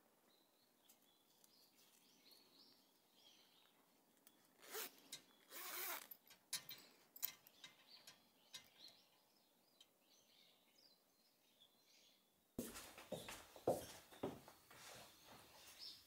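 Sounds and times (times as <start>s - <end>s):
net clicking and rustling: 4.5s - 7.6s
zipper pulled shut: 4.6s - 6.2s.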